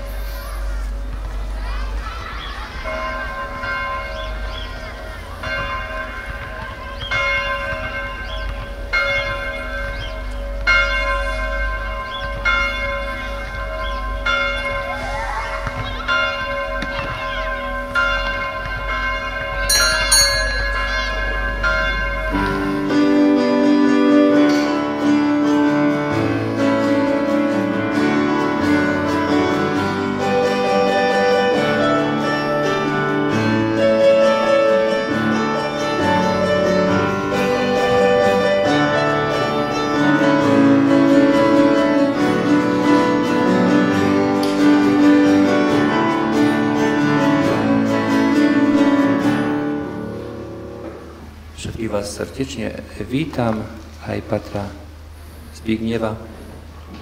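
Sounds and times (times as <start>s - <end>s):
church bell tolling: 2.6s - 51.6s
instrumental music: 16.5s - 51.4s.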